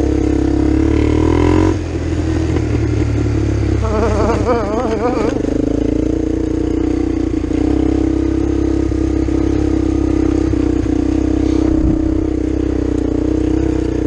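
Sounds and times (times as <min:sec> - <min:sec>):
atv engine running: 0:00.0 - 0:14.0
low rumble: 0:11.4 - 0:12.6.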